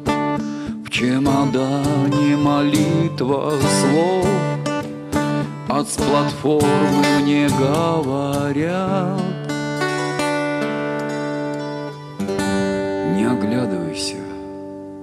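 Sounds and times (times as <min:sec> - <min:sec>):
acoustic guitar chords: 0:00.0 - 0:15.0
man singing a slow song: 0:00.6 - 0:04.8, 0:05.4 - 0:09.6.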